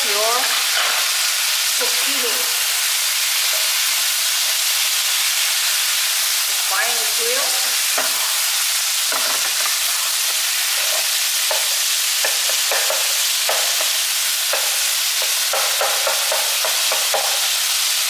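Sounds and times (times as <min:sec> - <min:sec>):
food sizzling in a frying pan: 0:00.0 - 0:18.0
spatula scraping and tapping pan: 0:07.9 - 0:08.4, 0:09.1 - 0:17.5.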